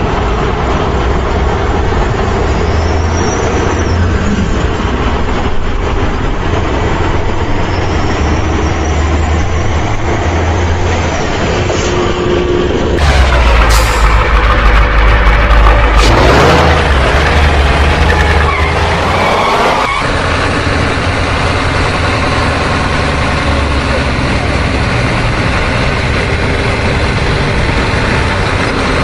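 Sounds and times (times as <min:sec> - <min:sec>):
heavy truck engine rumbling: 0:00.0 - 0:29.0.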